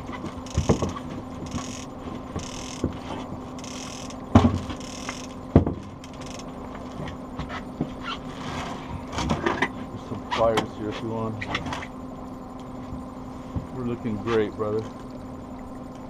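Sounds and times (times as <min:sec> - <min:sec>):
outboard motor running: 0:00.0 - 0:16.0
knocks on aluminium boat: 0:05.5 - 0:05.9.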